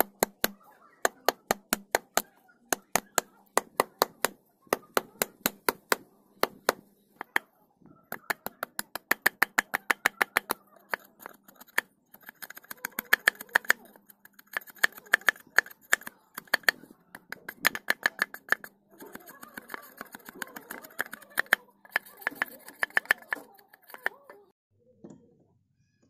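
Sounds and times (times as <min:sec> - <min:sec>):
knife chopping wooden stick: 0:00.0 - 0:07.4, 0:08.1 - 0:24.4.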